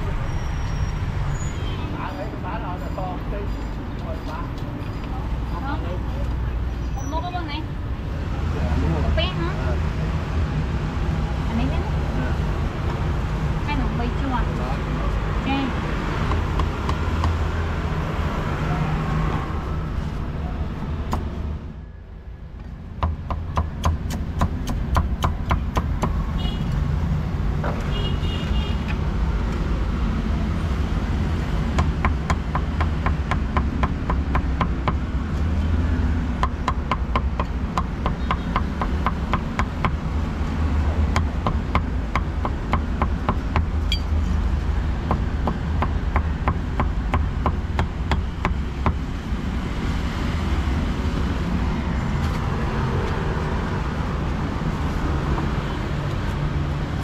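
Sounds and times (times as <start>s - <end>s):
low traffic rumble: 0.0s - 57.0s
knife chopping meat on a board: 23.0s - 26.2s, 41.1s - 43.7s.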